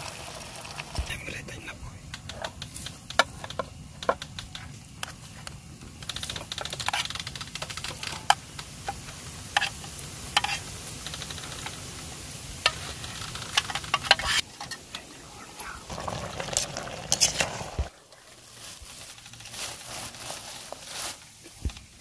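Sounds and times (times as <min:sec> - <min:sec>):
metal spoon scraping a mess tin: 0:09.5 - 0:10.6.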